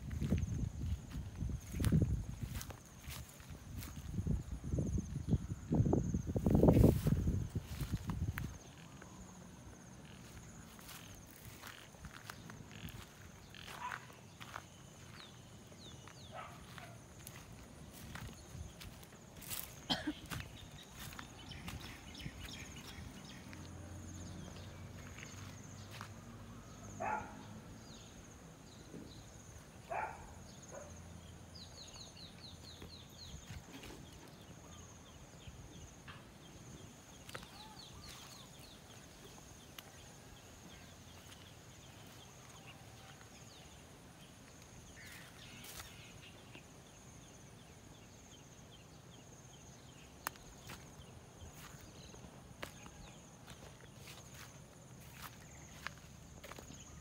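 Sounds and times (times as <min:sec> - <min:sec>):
light footsteps: 0:15.9 - 0:23.8.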